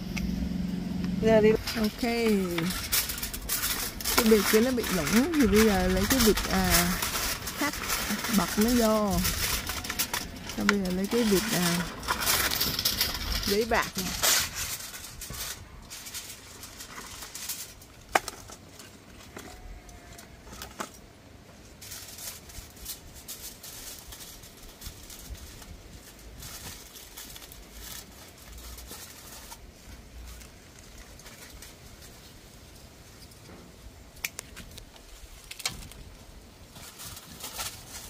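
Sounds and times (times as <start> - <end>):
low wind rumble: 0.0 - 18.2
aluminium foil crinkling: 1.2 - 38.0.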